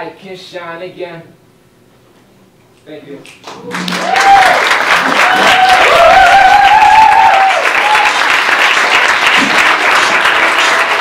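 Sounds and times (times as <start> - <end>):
audience applauding: 3.4 - 11.0
whooping cheers: 3.6 - 8.4.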